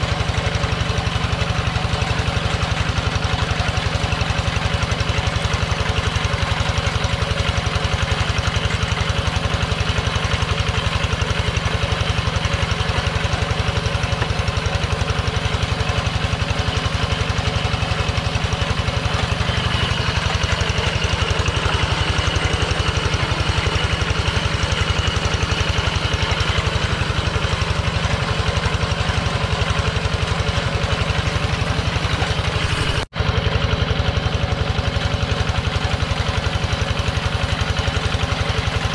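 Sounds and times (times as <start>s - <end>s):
diesel hand tractor engine running: 0.0s - 38.9s.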